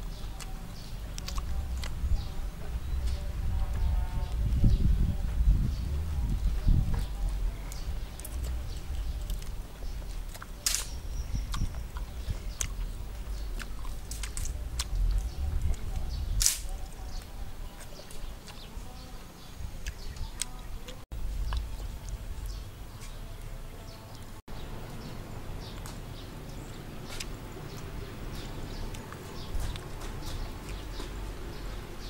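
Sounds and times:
lip smacks: 0.1s - 2.0s, 10.2s - 16.8s
person chewing with mouth clicks: 0.1s - 2.0s, 7.7s - 10.7s, 11.4s - 16.1s, 19.8s - 22.2s.

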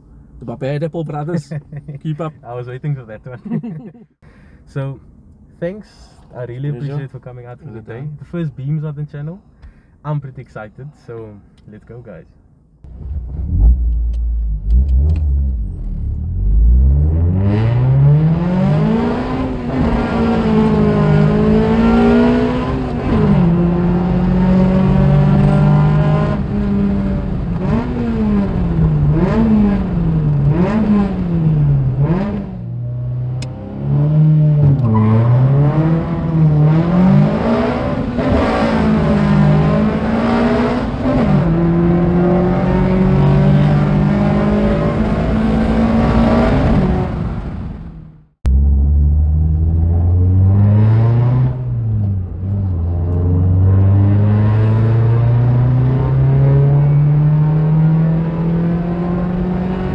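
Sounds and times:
car engine accelerating hard: 12.9s - 59.9s.

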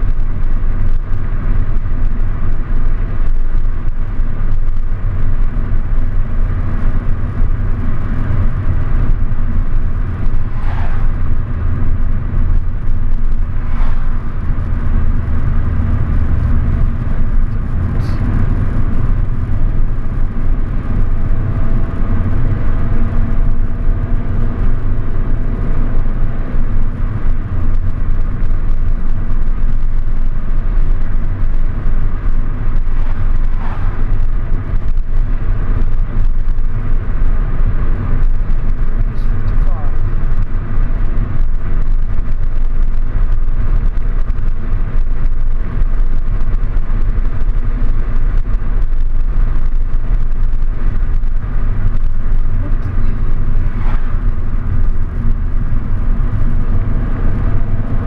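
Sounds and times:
car driving low rumble: 0.0s - 58.0s.

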